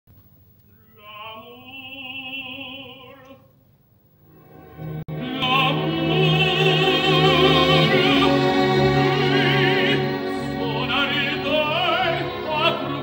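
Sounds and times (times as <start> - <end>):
operatic tenor singing: 1.0 - 3.4, 5.1 - 13.0
orchestra sustained chord: 4.4 - 13.0.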